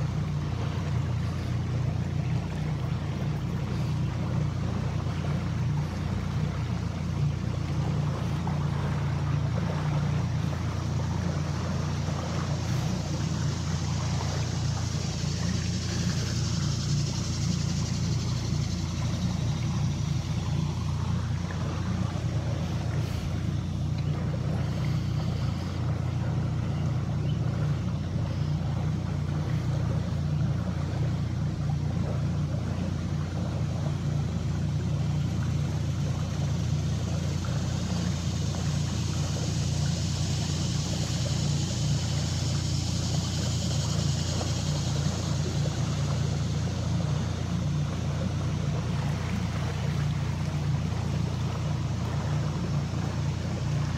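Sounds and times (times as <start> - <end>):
outboard motor droning: 0.0 - 53.9.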